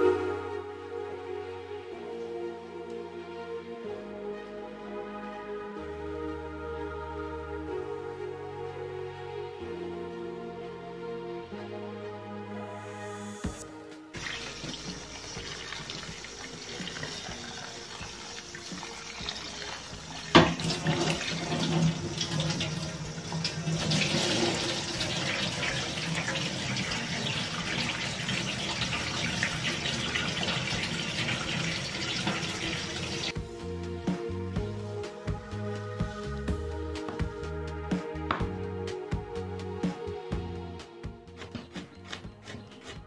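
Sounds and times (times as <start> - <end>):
water splashing into a sink: 14.2 - 33.3.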